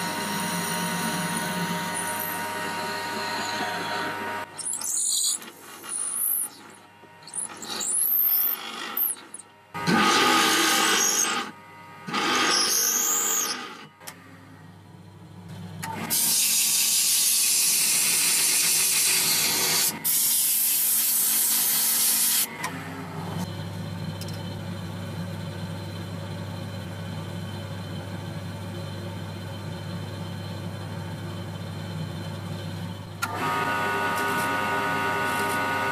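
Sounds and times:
drill bit grinding into wood: 0.0s - 6.6s, 7.3s - 11.5s, 12.1s - 13.8s
drill bit squealing: 0.0s - 13.9s, 16.2s - 22.5s
low motor hum: 0.0s - 16.0s, 22.5s - 35.9s.

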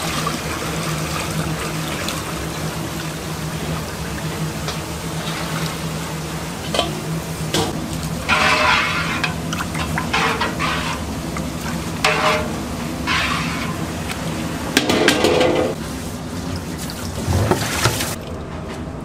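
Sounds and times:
water sloshing in metal pot: 7.6s - 14.1s, 16.7s - 18.4s.

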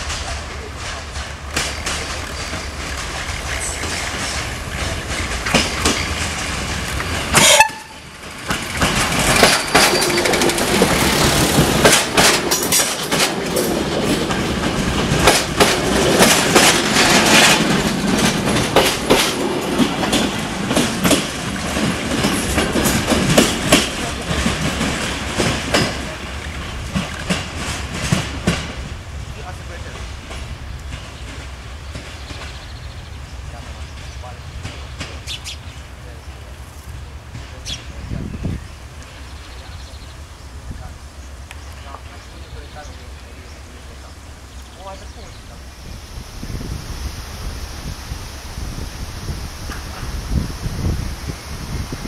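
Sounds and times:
diesel train engine running: 0.0s - 52.0s
train wheels clicking over rail joints: 0.0s - 52.0s.

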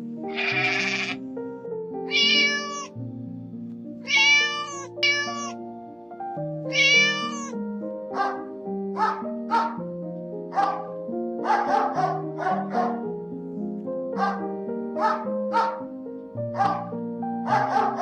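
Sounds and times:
background music: 0.0s - 18.0s
kitten meowing: 0.3s - 1.2s, 2.1s - 3.0s, 4.0s - 5.6s, 6.7s - 7.6s
dog bark: 8.1s - 9.8s, 10.5s - 13.1s, 14.2s - 15.9s, 16.5s - 18.0s.

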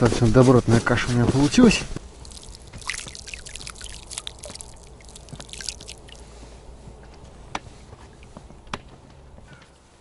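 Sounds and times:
groundbait splashing into water: 2.2s - 6.4s.

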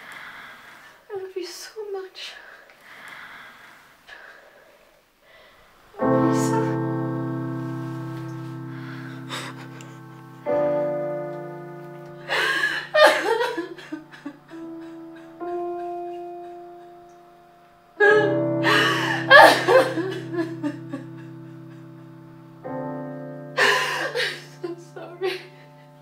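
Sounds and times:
slow piano chords: 5.9s - 26.0s
woman sobbing and wailing: 12.3s - 17.1s, 18.0s - 22.0s, 23.6s - 25.6s.

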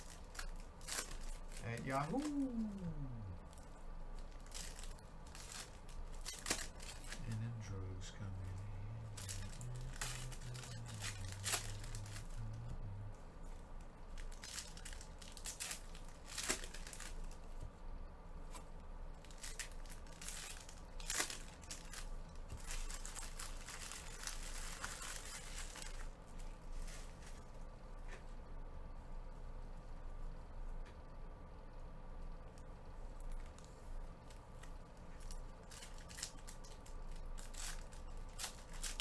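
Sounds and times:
card pack wrappers crinkling: 0.0s - 13.1s, 14.1s - 17.6s, 19.2s - 26.1s, 34.6s - 39.0s.

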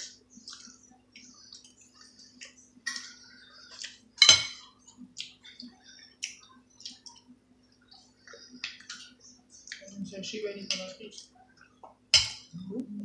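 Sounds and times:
cutlery clicking against plates: 3.8s - 4.7s, 12.1s - 12.5s.

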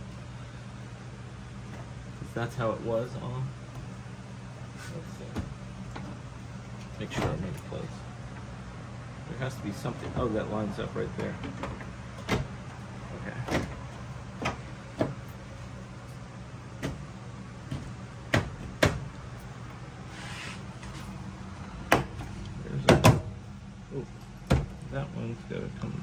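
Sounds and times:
short scrape: 20.1s - 20.7s
panel parts clicking and knocking: 21.8s - 23.3s.

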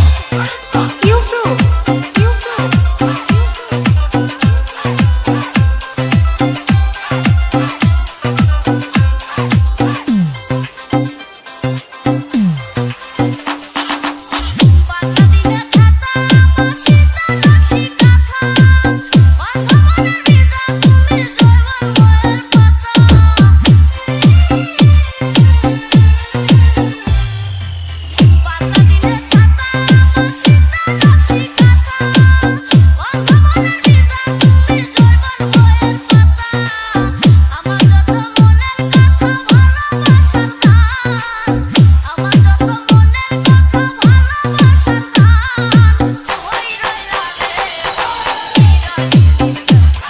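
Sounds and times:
electronic dance music: 0.0s - 50.0s
booming kick drum: 14.5s - 27.5s
deep bass glide: 23.0s - 30.3s.

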